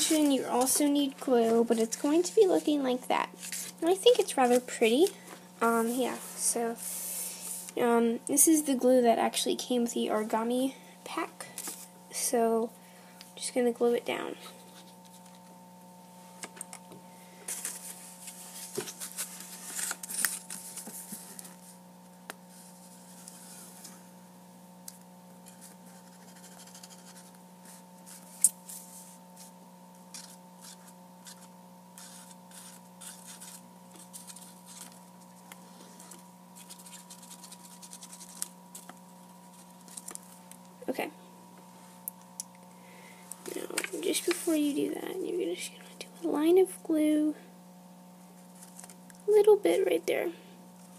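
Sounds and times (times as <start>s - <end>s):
faint hum: 0.0s - 50.9s
paper rustling: 3.4s - 6.2s, 17.5s - 21.6s, 30.1s - 40.4s, 48.4s - 49.0s.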